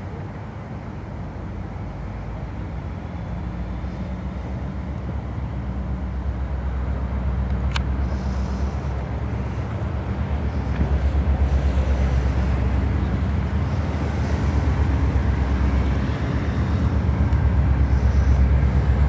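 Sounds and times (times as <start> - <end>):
diesel locomotives passing: 0.0 - 19.0
train wheels rumbling on rail: 2.9 - 19.0.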